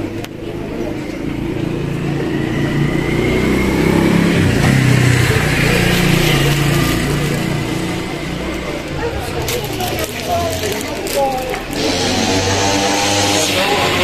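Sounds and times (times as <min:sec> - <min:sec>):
vehicle engine passing: 0:00.0 - 0:14.0.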